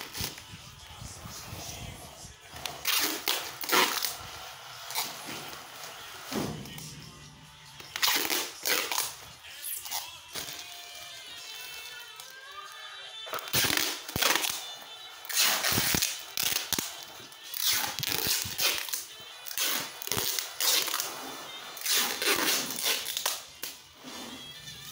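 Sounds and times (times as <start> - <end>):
packing tape tearing off roll: 0.0 - 0.9, 2.4 - 7.0, 7.6 - 24.9
plastic crinkling: 7.8 - 10.8, 13.3 - 23.8.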